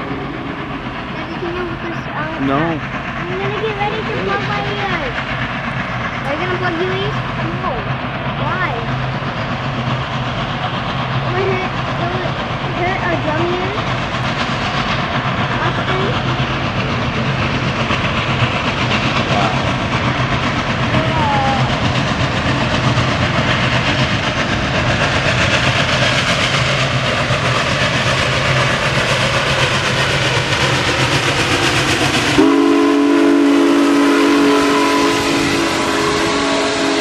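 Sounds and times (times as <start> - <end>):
steam locomotive rumbling: 0.0 - 37.0
steam whistle: 32.4 - 37.0.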